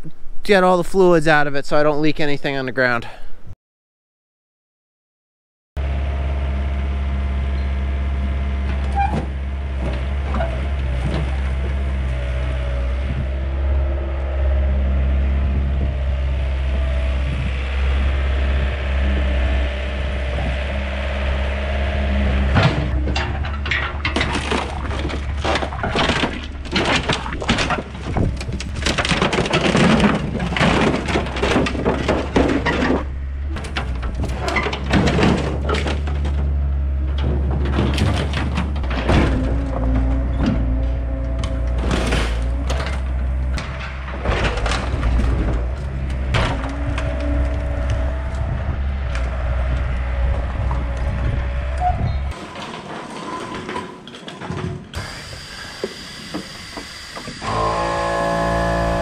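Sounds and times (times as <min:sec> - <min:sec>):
excavator diesel engine running: 0:05.8 - 0:53.0, 0:55.0 - 0:59.0
sheet metal crunching and tearing: 0:20.0 - 0:55.0.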